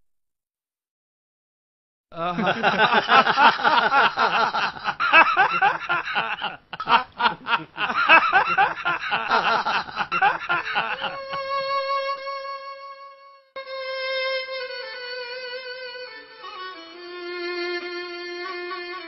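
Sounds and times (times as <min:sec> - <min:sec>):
men laughing: 0:02.2 - 0:11.5
held violin note: 0:11.2 - 0:19.0.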